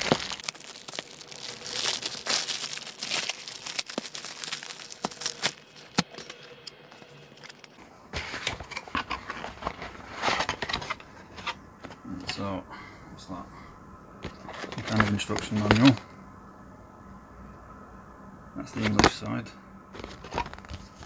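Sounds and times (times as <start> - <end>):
cardboard box rustling: 0.0 - 6.4, 8.2 - 12.0, 14.2 - 16.0, 20.0 - 21.0
plastic bag crinkling and tearing: 0.0 - 7.8, 20.0 - 21.0.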